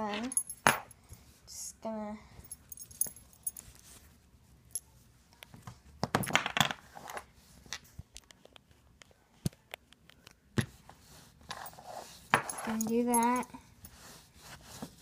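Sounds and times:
cloth rustling scrape: 11.0 - 12.3, 13.9 - 15.0.

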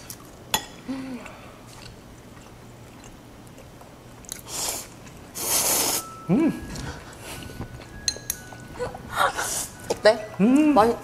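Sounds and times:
soft chewing: 1.2 - 5.4
person humming mm: 5.6 - 6.7.

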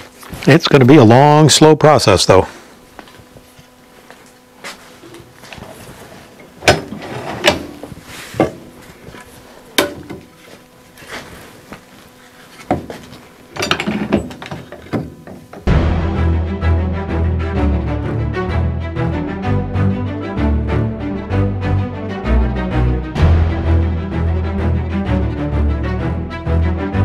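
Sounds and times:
wooden knocks and clunks: 12.6 - 15.7.

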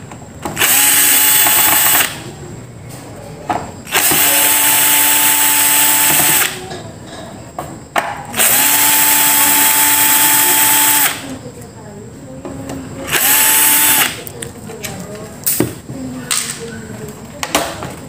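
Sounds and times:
cordless drill whining: 0.6 - 2.2, 3.9 - 6.6, 8.4 - 11.2, 13.1 - 14.2.

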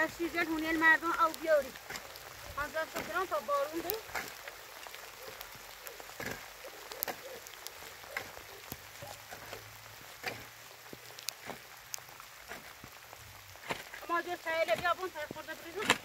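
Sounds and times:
shovel digging into stony soil: 10.2 - 10.5, 11.4 - 11.7, 13.6 - 14.1, 15.6 - 16.0.

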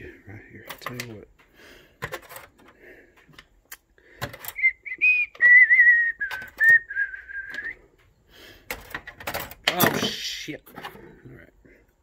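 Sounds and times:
person whistling a tune: 4.5 - 7.8.

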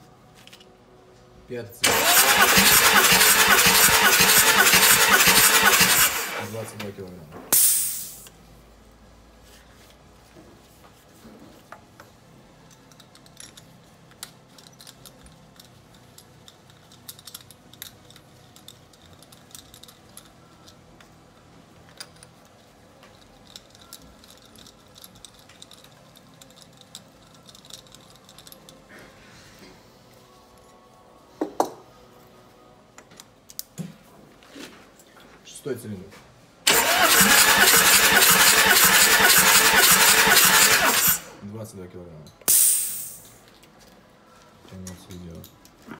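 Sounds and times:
metallic tool clicks and clinks: 12.6 - 20.8, 21.9 - 28.9.

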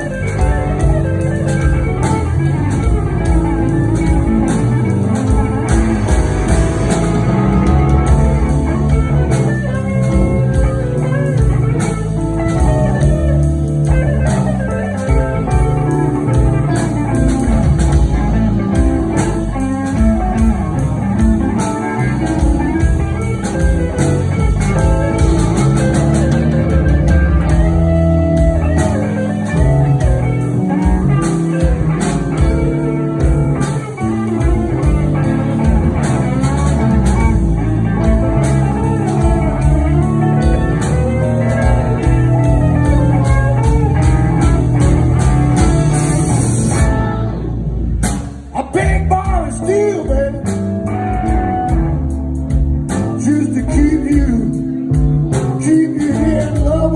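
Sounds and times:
bass guitar: 0.0 - 56.9
drum kit beat: 0.0 - 56.9
electric guitars: 0.0 - 56.9
keyboard: 0.0 - 56.9.

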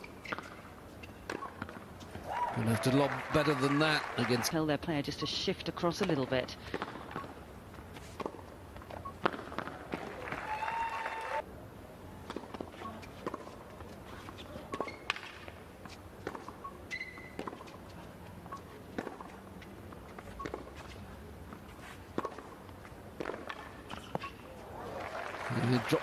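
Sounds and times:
low arena background: 0.0 - 26.0
high shoe squeak: 14.1 - 15.2, 15.9 - 17.8, 23.9 - 24.5.

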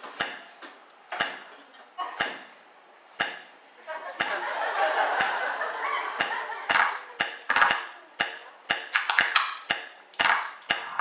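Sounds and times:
sharp taps or claps: 5.2 - 5.4, 6.2 - 10.9.

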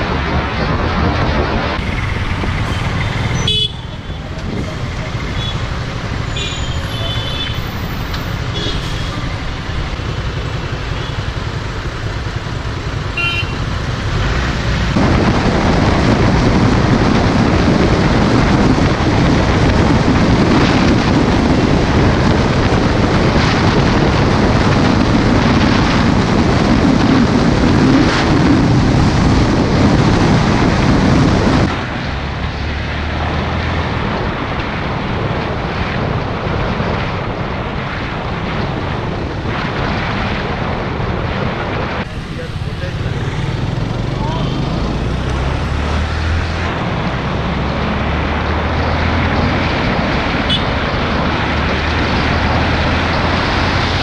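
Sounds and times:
road noise: 0.0 - 54.0
wind rushing: 0.0 - 54.0
motorcycle engine: 0.6 - 27.9, 42.0 - 54.0
vehicle horn toots: 2.7 - 4.2, 6.3 - 7.6, 8.5 - 9.2, 13.2 - 13.6, 50.5 - 50.8.

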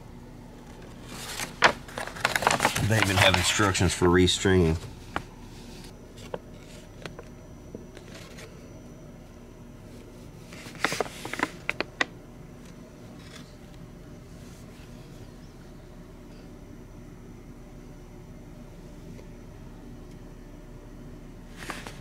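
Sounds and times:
faint steady hum: 0.0 - 22.0
paper pages turning: 0.9 - 5.2, 10.5 - 11.9.

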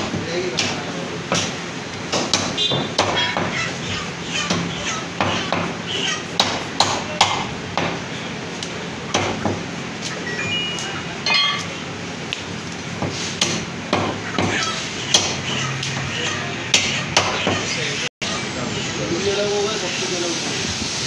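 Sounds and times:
cleaver chopping meat on wood: 0.0 - 3.6, 4.5 - 5.8, 6.4 - 8.0, 9.1 - 9.6, 13.0 - 16.1, 16.7 - 17.7
metallic ring: 10.3 - 11.8.

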